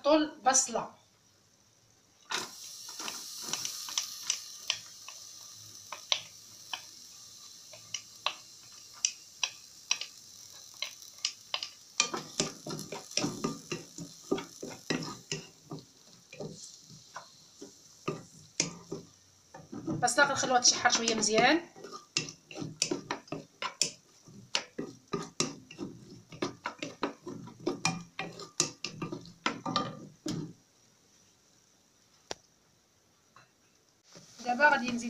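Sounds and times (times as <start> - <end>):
onion sizzling in hot oil: 0.1 - 32.1, 34.0 - 35.0
wooden spatula tapping and scraping: 5.8 - 6.9, 7.7 - 30.6, 33.4 - 35.0
spatula knocking in pan: 10.8 - 30.6.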